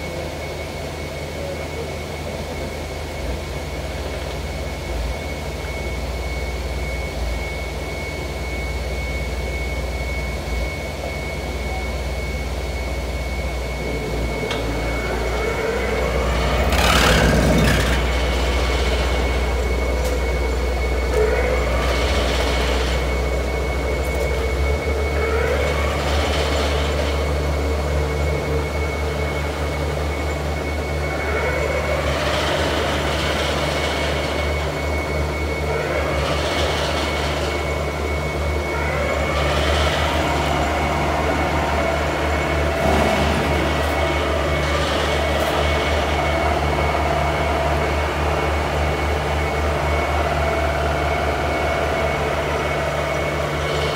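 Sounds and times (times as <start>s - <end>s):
constant high whine: 0.0s - 53.9s
piling rig diesel engine: 0.0s - 53.9s
pile hammer running: 14.4s - 19.4s, 38.9s - 47.9s.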